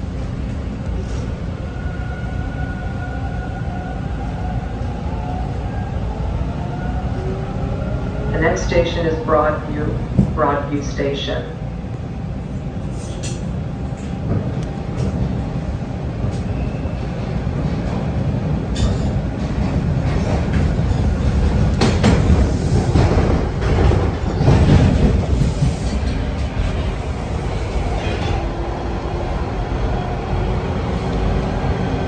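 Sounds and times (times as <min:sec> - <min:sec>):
subway train wheels and motors: 0:00.0 - 0:32.0
sharp clicks from rails: 0:18.7 - 0:26.8.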